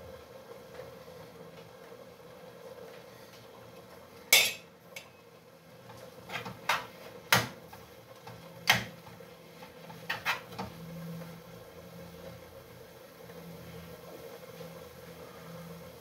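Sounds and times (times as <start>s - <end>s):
metal spoon clanking on pans: 4.3s - 5.2s.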